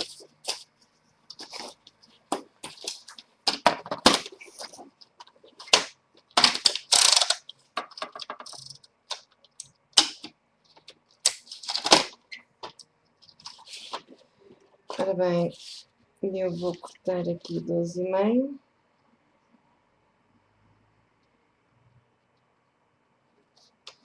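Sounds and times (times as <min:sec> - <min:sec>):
paper rustling: 0:00.0 - 0:09.2, 0:10.7 - 0:14.3.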